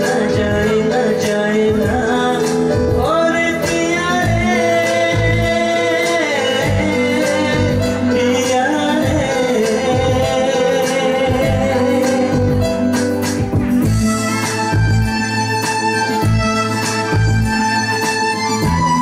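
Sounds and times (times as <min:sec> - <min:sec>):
man singing through a microphone: 0:00.0 - 0:13.0
electronic keyboard: 0:00.0 - 0:19.0
steady drum beat: 0:01.7 - 0:08.2, 0:08.9 - 0:19.0.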